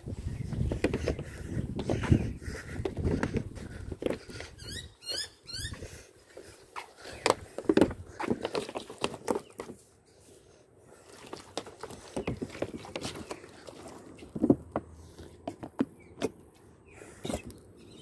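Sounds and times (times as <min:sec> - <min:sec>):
footsteps on concrete: 0:00.4 - 0:04.6.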